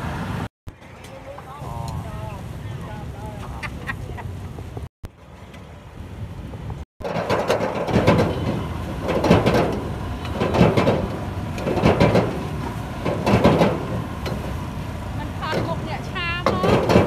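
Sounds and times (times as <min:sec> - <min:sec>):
ladle scraping and clanking on wok: 0:07.0 - 0:14.6.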